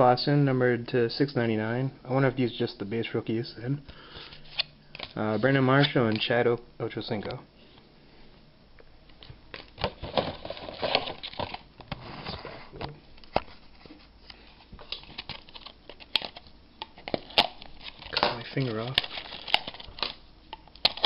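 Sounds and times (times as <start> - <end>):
plastic wrapper crinkling: 9.5 - 11.7, 14.8 - 21.0.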